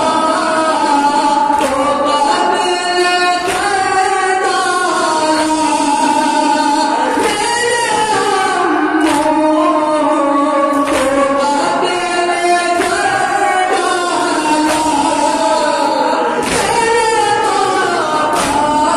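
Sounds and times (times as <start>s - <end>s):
male reciter singing lament: 0.0s - 18.9s
people beating chests: 10.7s - 11.5s, 12.7s - 13.5s, 14.3s - 15.5s, 16.4s - 18.9s.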